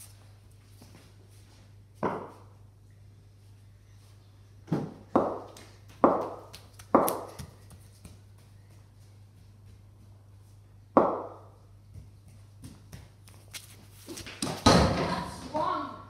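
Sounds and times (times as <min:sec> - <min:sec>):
faint low hum: 0:00.0 - 0:16.0
cricket ball hard knocks: 0:11.0 - 0:11.4.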